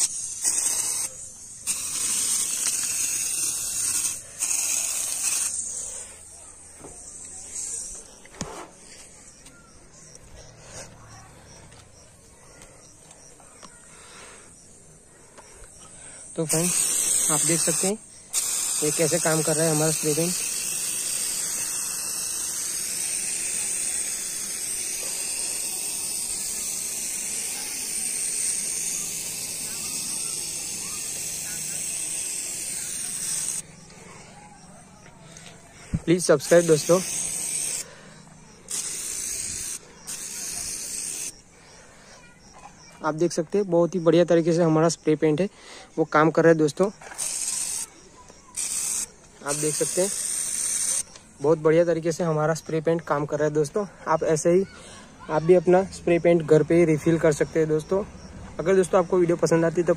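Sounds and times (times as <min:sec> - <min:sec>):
spray paint can hissing: 0:00.0 - 0:08.7, 0:16.4 - 0:34.1, 0:35.9 - 0:41.4, 0:46.3 - 0:54.5.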